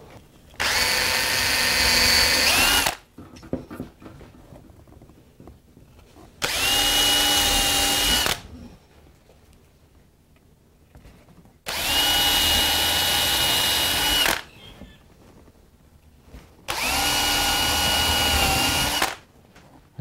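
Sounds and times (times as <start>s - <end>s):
cordless drill whining: 0.6s - 3.0s, 6.4s - 8.5s, 11.7s - 14.7s, 16.7s - 19.2s.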